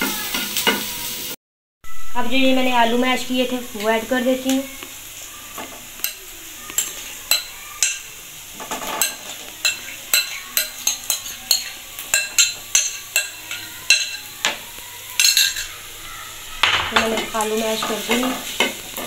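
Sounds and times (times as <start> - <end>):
onions sizzling in oil: 0.0 - 19.0
spoon scraping and clicking on dishes: 8.6 - 14.6, 15.2 - 15.7.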